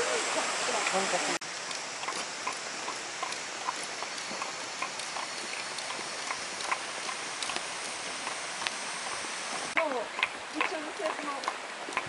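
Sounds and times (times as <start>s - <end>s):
stream rushing: 0.0s - 12.0s
footsteps on paved path: 1.7s - 12.0s.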